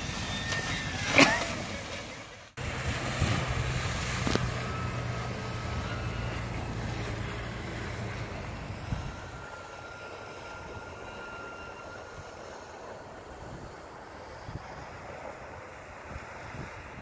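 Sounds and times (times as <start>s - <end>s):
low motor hum: 0.0s - 16.0s
outdoor noise: 0.0s - 17.0s.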